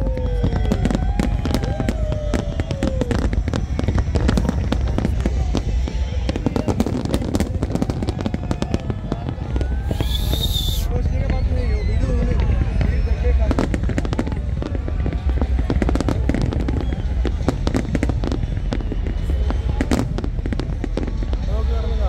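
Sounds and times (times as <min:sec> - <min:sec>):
fireworks crackling and popping: 0:00.0 - 0:22.0
falling whistle tones: 0:09.8 - 0:13.4.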